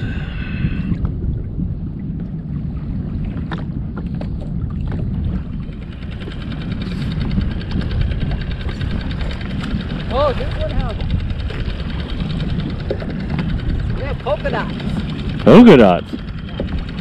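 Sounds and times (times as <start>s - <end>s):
wind buffeting microphone: 0.0s - 17.0s
small motor running: 5.6s - 17.0s.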